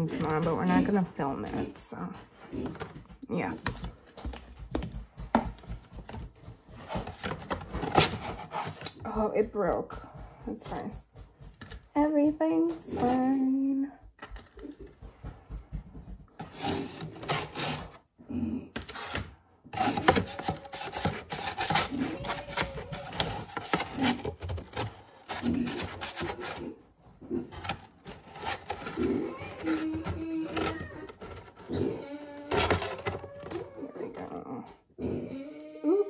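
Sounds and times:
plastic spatula scraping metal sheet: 0:00.0 - 0:04.4, 0:06.0 - 0:09.1, 0:12.5 - 0:13.5, 0:16.4 - 0:18.1, 0:18.7 - 0:34.4.

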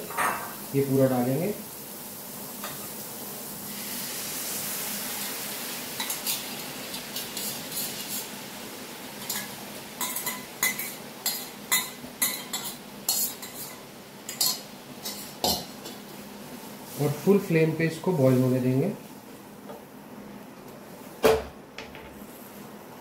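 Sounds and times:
sauce sizzling in hot pan: 0:00.0 - 0:19.4
utensil scraping and clanking pan: 0:06.0 - 0:08.3, 0:09.2 - 0:16.0.

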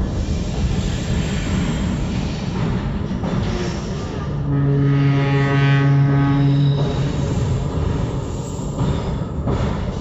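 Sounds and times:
moving train rumble: 0:00.0 - 0:10.0
train horn: 0:03.4 - 0:07.1.

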